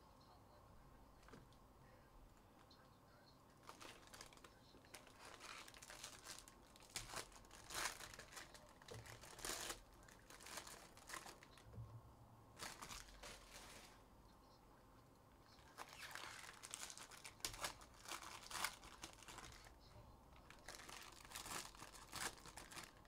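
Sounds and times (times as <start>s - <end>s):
card pack wrappers crinkling: 3.5s - 11.7s, 12.6s - 14.0s, 15.6s - 19.8s, 20.4s - 23.0s.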